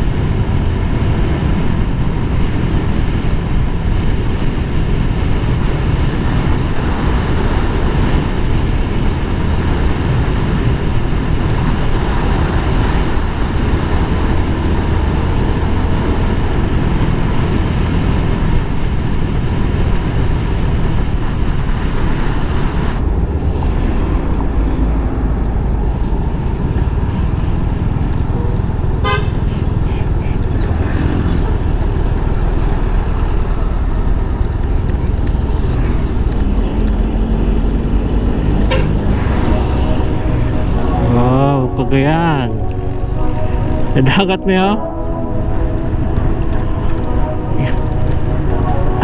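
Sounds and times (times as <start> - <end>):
passing traffic: 0.0 - 49.0
wind noise on microphone: 0.0 - 49.0
vehicle horn beeping: 28.4 - 30.4, 38.6 - 49.0.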